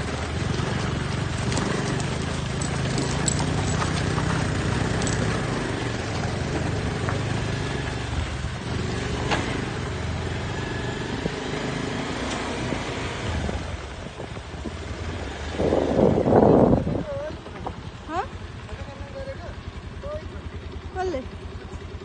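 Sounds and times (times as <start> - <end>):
tyre noise: 0.0 - 7.7
small motorbike engine running: 0.0 - 22.0
wind noise: 12.6 - 17.8.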